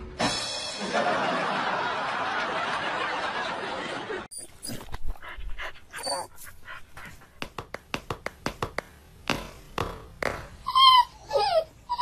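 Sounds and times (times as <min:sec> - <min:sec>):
dog panting: 0:04.4 - 0:07.6.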